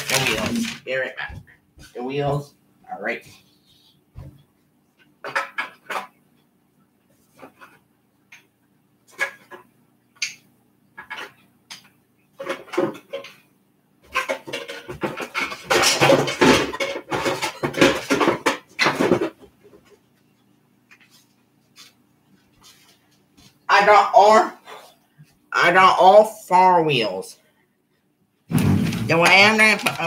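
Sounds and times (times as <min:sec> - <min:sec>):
hard objects clattering: 0:00.0 - 0:01.4, 0:14.1 - 0:19.8, 0:28.5 - 0:30.0.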